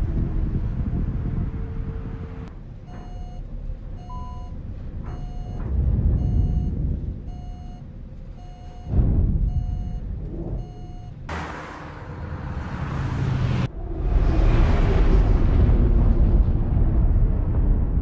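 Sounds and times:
low rumble: 0.0s - 18.0s
cockpit warning alert beeping: 2.9s - 3.4s, 4.0s - 5.6s, 6.2s - 11.2s.

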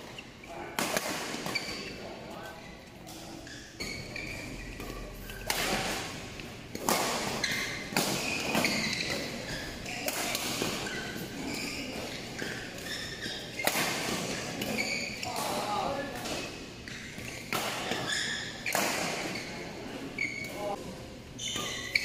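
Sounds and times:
sneakers squeaking on court: 1.3s - 15.6s, 16.3s - 22.0s
racket hitting shuttlecock: 4.8s - 11.3s, 13.5s - 15.6s.

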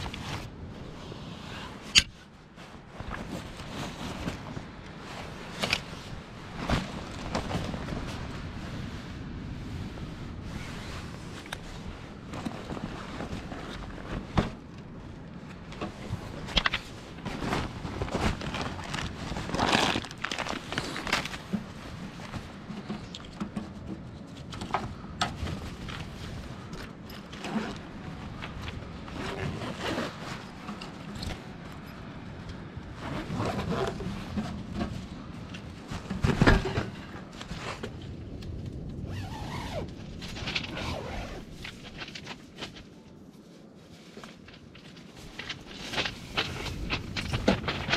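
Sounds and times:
nylon bags rustling: 10.5s - 23.9s, 24.9s - 38.1s, 38.8s - 47.9s
zip: 27.2s - 28.1s, 29.0s - 31.4s, 33.0s - 34.2s, 39.1s - 41.9s.

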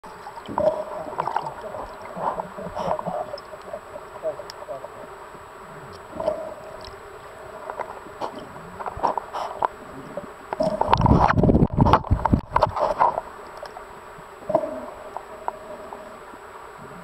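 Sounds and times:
muffled bubbly underwater wash: 0.0s - 17.0s
small underwater clicks: 0.1s - 4.8s, 5.9s - 7.0s, 7.6s - 15.7s
muffled voice-like bursts: 0.7s - 6.6s.

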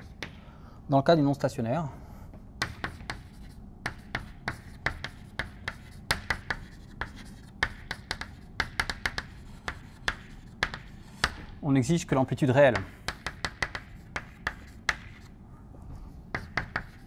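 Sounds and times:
chalk tapping on blackboard: 2.6s - 11.5s, 12.7s - 15.3s, 16.3s - 17.0s.

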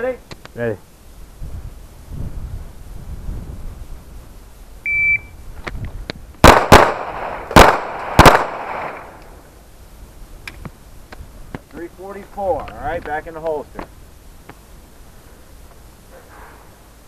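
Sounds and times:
shot timer beep: 4.9s - 5.3s
pistol shots echoing: 6.4s - 9.2s.

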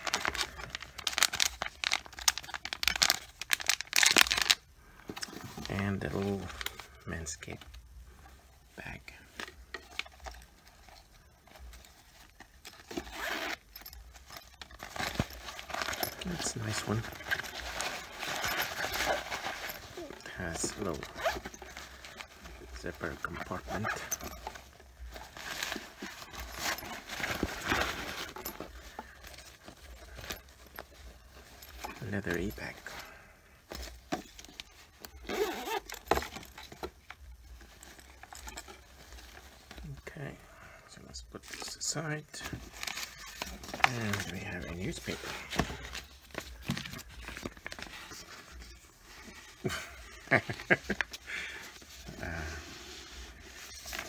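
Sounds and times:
handling rustles and clicks: 0.0s - 54.0s
zipper being pulled open: 12.7s - 30.8s, 33.8s - 36.7s.

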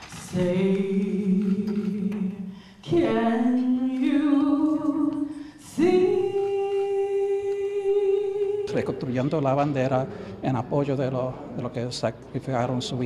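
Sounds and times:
person singing unaccompanied: 0.2s - 9.4s.

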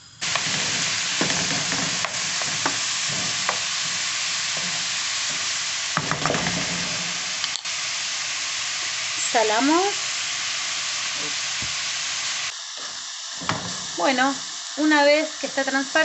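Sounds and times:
onion sizzling in hot oil: 0.0s - 16.0s
wooden spoon knocking and scraping pot: 0.2s - 7.0s.

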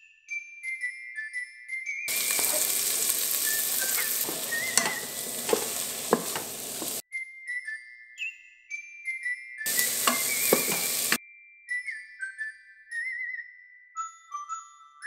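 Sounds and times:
onions sizzling in hot oil: 2.1s - 7.0s, 9.7s - 11.2s
wooden spatula tapping pot: 2.1s - 7.0s, 9.7s - 11.2s.

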